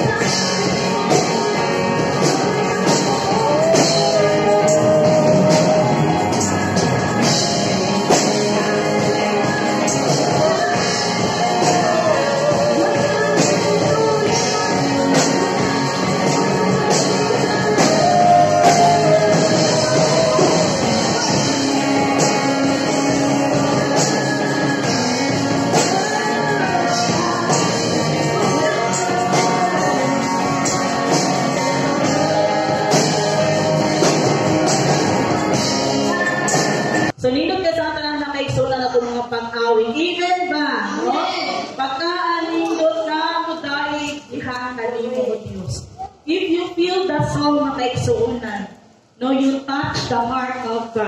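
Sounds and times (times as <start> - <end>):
man singing: 0.0 - 6.9, 8.4 - 37.1
electric guitar: 0.0 - 37.2
keyboard: 0.0 - 37.2
woman singing: 0.0 - 37.4
drums: 0.0 - 39.1, 43.9 - 51.0.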